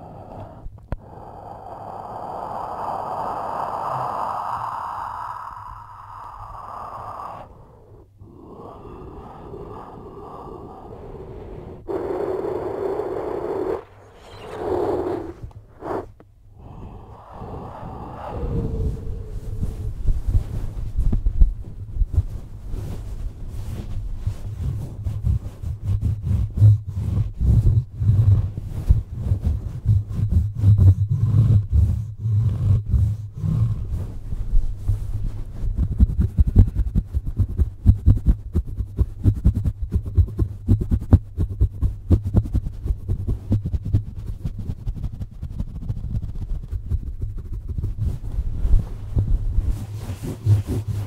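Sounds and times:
cloth rubbing over microphone: 17.4s - 51.0s.

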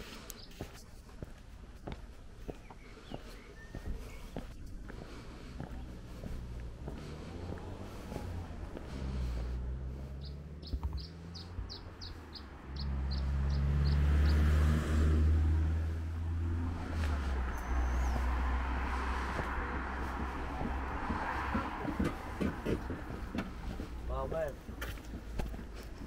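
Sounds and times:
low engine hum: 0.0s - 26.0s
small bird chirping: 10.1s - 14.4s.

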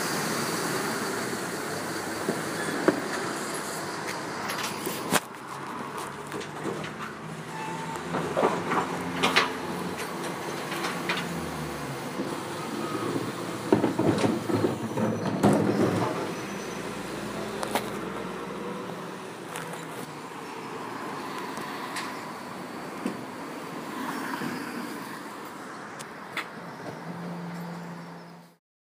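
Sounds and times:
refuse lorry engine running: 0.0s - 24.5s
bins knocking and clattering: 13.7s - 16.4s.

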